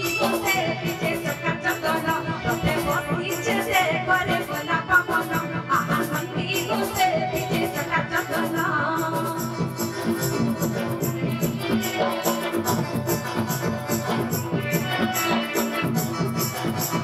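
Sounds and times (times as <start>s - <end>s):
instrumental accompaniment: 0.0s - 17.0s
shaken percussion: 0.0s - 17.0s
woman singing into a microphone: 0.0s - 17.0s.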